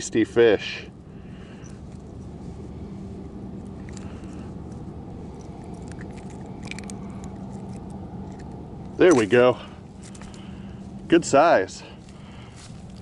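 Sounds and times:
low background rumble: 0:00.0 - 0:13.0
faint metal clicks and ticks: 0:05.4 - 0:09.3.

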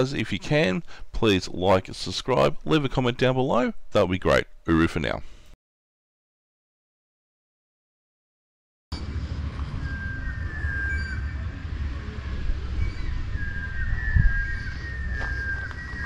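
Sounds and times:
birds whistling: 0:09.0 - 0:16.0
wind buffeting microphone: 0:09.2 - 0:16.0.

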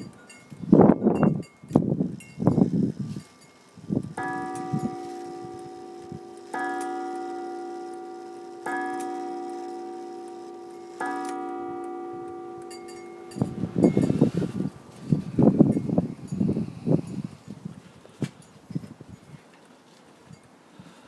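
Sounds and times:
clock gong striking: 0:04.2 - 0:14.7.

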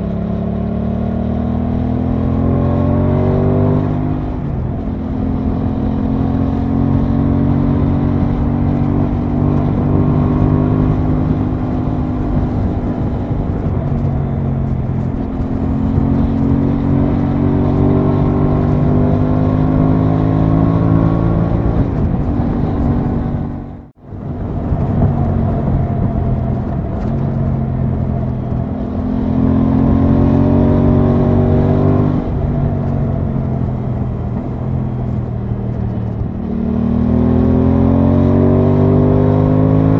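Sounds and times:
motorcycle engine at road speed: 0:00.0 - 0:39.9.

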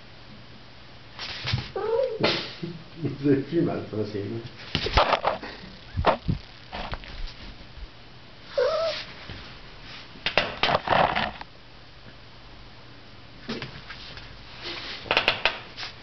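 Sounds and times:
cat meowing: 0:08.5 - 0:09.0.

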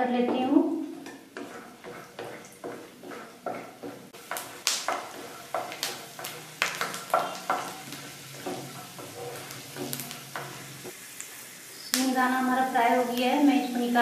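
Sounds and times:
light oil sizzle: 0:00.0 - 0:14.0
spatula scraping a pan: 0:00.8 - 0:11.0.

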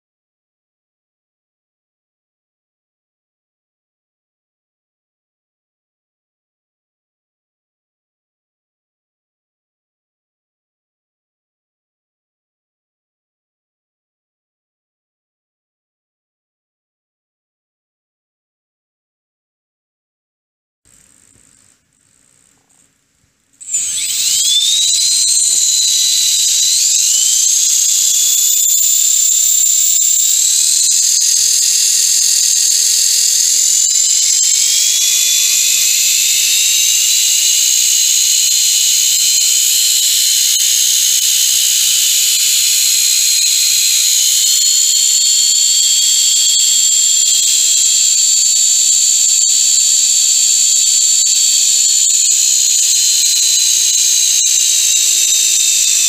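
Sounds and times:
high-pitched model helicopter whine: 0:23.6 - 0:56.0.

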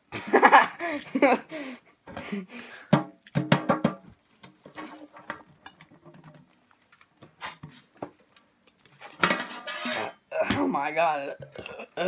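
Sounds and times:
metal tin lid clicking and scraping: 0:09.0 - 0:10.2.

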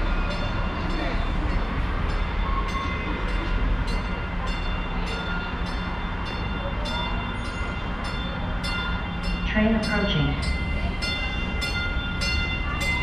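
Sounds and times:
train low rumble: 0:00.0 - 0:13.0.

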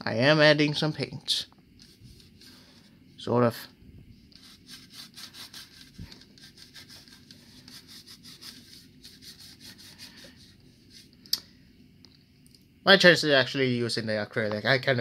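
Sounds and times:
paintbrush scrubbing on plastic: 0:04.3 - 0:11.2.

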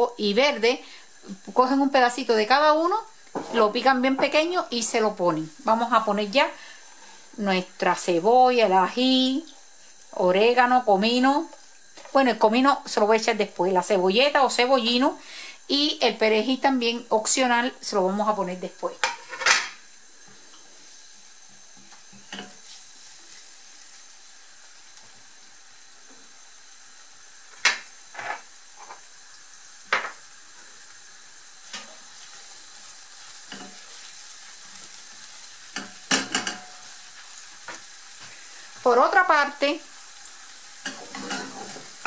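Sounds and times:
onions sizzling in oil: 0:00.0 - 0:42.0
utensil scraping frying pan: 0:19.0 - 0:19.8, 0:21.7 - 0:23.4, 0:27.5 - 0:29.0, 0:33.3 - 0:34.9, 0:35.7 - 0:38.4, 0:40.7 - 0:42.0.

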